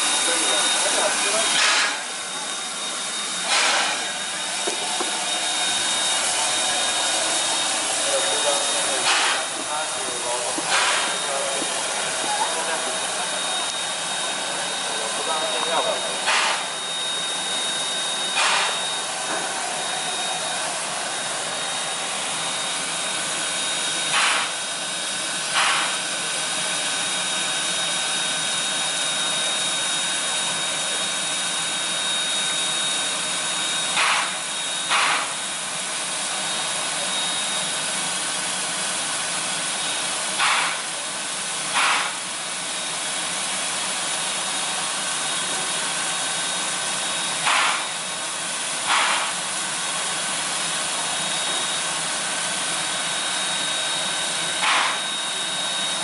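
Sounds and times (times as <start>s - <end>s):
steam puffs: 0.0s - 27.4s, 32.6s - 38.4s, 39.0s - 55.4s
steam locomotive hissing: 0.0s - 56.0s.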